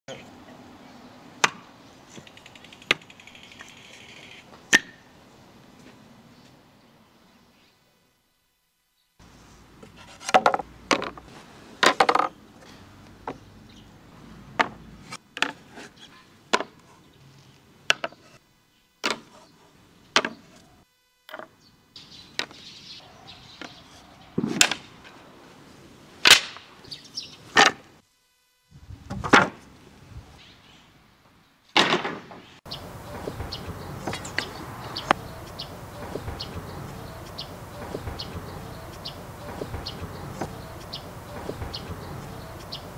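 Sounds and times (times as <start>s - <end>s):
wooden boards clacking: 31.8s - 32.4s.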